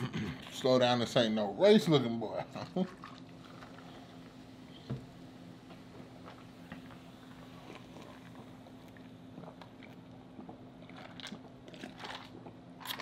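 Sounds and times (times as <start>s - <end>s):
gulping a drink: 2.4s - 4.3s, 7.4s - 13.0s
man chewing: 7.3s - 13.0s.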